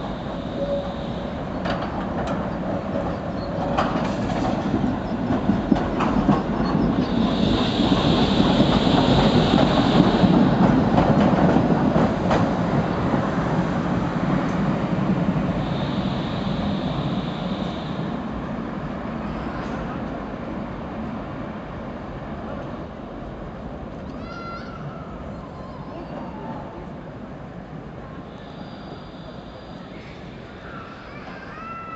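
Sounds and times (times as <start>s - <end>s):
tram wheels rumbling on rails: 0.0s - 31.9s
high hiss of tram: 7.0s - 11.0s, 15.3s - 18.4s.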